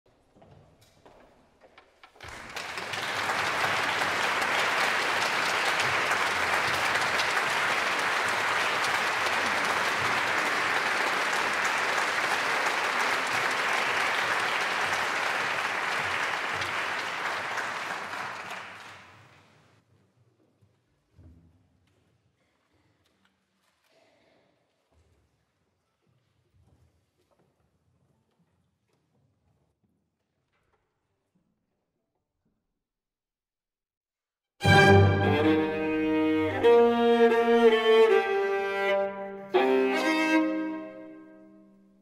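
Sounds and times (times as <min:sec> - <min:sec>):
audience applauding: 0:02.2 - 0:19.4, 0:34.6 - 0:38.2.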